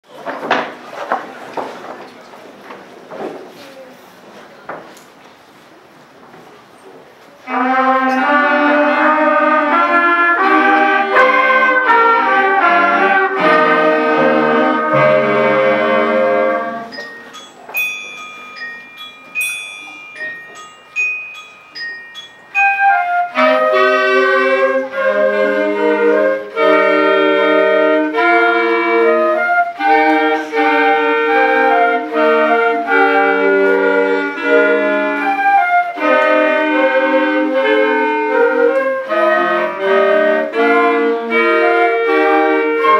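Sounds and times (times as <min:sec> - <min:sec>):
concert band playing: 0:07.5 - 0:19.4
high bell-like notes: 0:16.8 - 0:23.4.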